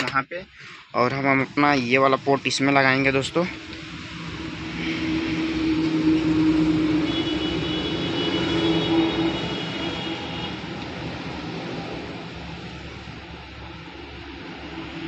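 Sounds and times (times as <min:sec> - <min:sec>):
thin high whine: 0:01.0 - 0:10.1.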